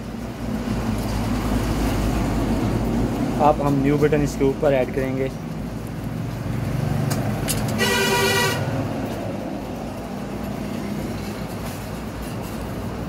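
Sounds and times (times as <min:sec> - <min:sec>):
street traffic rumble: 0:00.0 - 0:13.0
vehicle horn honk: 0:07.8 - 0:08.7.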